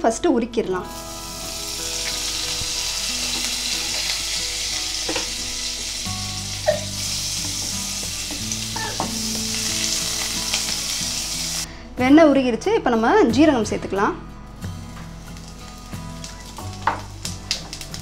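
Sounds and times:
butter sizzling in a pot: 0.8 - 11.7, 14.8 - 18.0.

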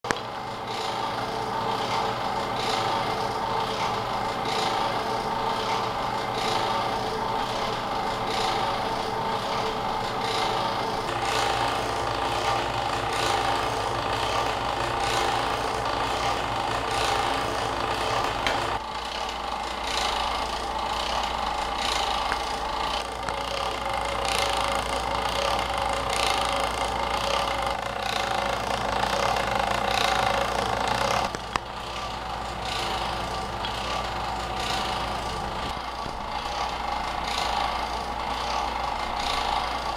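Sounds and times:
motor rotor whirring and humming: 0.1 - 39.9.

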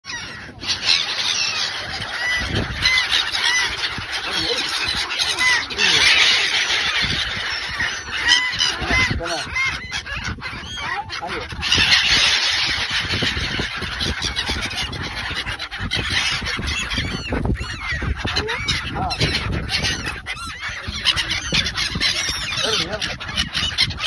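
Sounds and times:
flock of gulls calling: 0.0 - 24.0.

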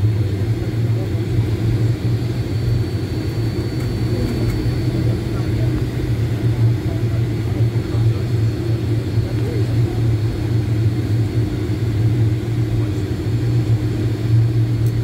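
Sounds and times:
airplane engines low rumble and hum: 0.0 - 15.0.

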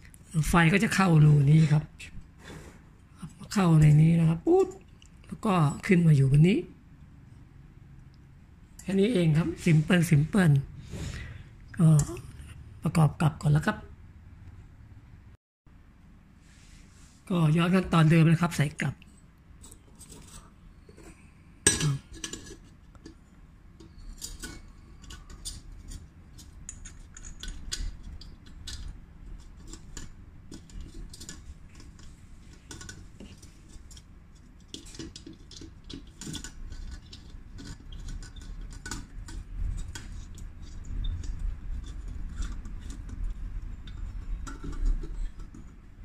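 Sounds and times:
metal burner parts clinking: 19.6 - 22.7, 23.8 - 40.4.

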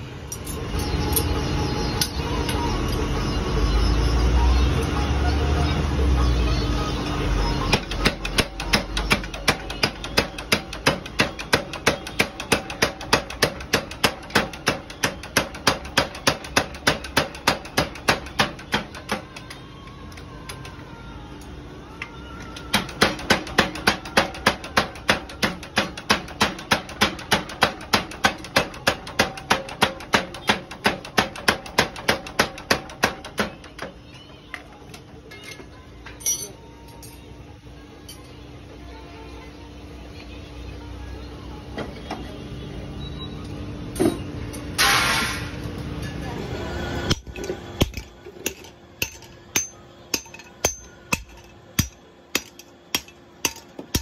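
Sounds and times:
power hammer striking hot steel: 44.8 - 45.6, 47.1 - 54.0.

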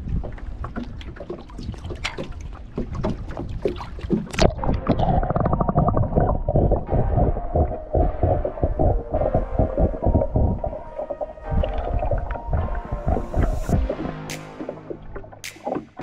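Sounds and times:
splash: 0.0 - 4.8
wind on microphone: 0.0 - 14.0
choppy water slapping: 0.0 - 16.0
muffled underwater hum: 4.4 - 14.2.

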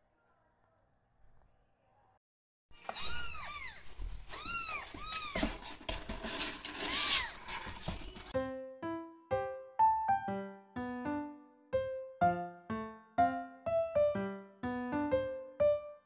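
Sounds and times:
kittens mewing: 2.8 - 5.6
scratching in cardboard box: 3.1 - 8.3.

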